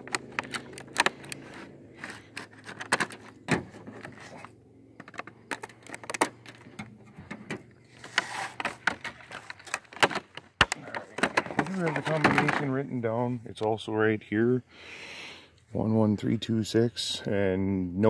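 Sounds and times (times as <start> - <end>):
plastic crackling: 0.0 - 12.6.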